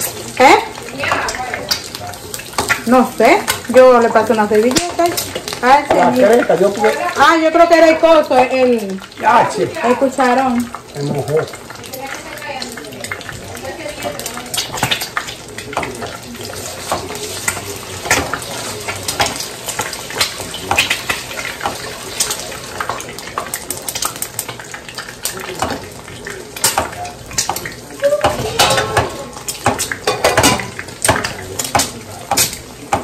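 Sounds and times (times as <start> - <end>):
metal spoon stirring in steel pot: 26.6 - 33.0.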